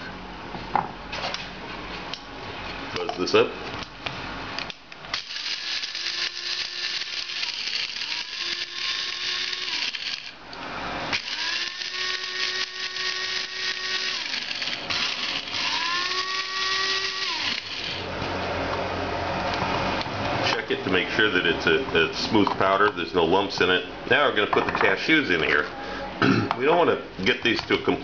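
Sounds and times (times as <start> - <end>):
spice grinder motor whine: 5.1 - 18.3.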